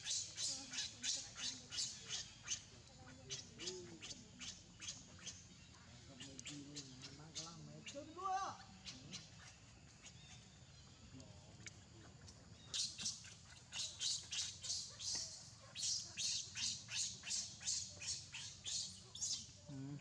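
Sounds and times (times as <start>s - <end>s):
baby monkey squealing: 12.8s - 19.5s.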